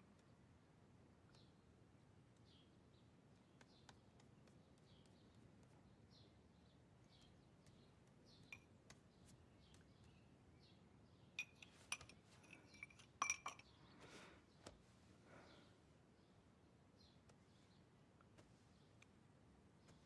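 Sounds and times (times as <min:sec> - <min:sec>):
ceramic spoon clinking on dish: 0:11.4 - 0:13.7.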